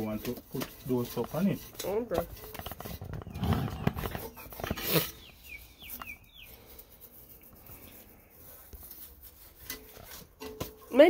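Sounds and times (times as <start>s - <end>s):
plastic brush scrubbing: 0.0s - 11.0s
bird chirping: 3.0s - 7.4s.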